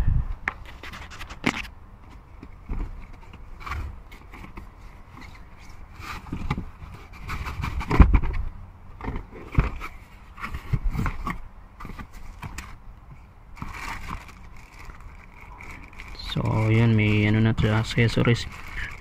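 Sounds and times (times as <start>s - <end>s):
cardboard box scraping and knocking: 2.5s - 12.8s, 13.6s - 14.4s
plastic-wrapped cables rustling: 13.6s - 19.0s.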